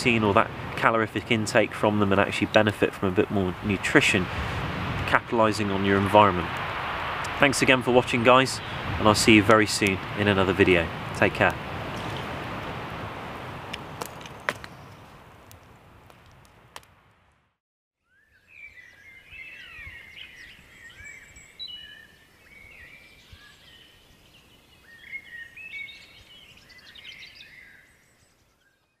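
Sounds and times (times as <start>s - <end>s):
outdoor background noise: 0.0s - 17.6s
birds singing and chirping: 7.6s - 12.2s, 18.0s - 29.0s.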